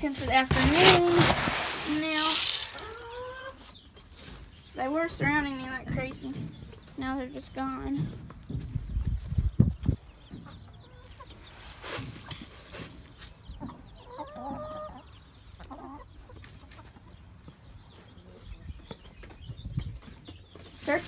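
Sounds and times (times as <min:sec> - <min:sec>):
rustle: 0:00.0 - 0:04.6
hens clucking: 0:00.0 - 0:21.0.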